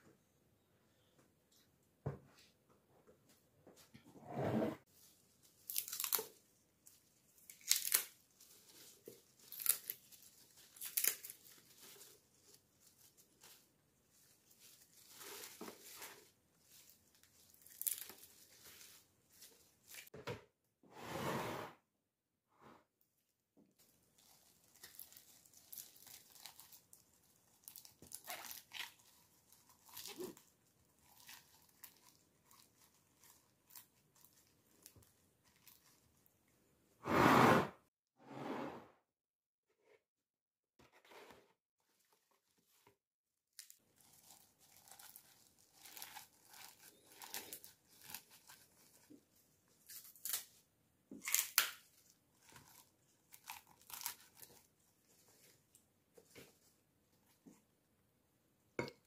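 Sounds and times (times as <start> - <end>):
celery leaves rustling and tearing: 5.0 - 20.1, 23.8 - 36.2, 43.6 - 50.6, 51.2 - 55.6.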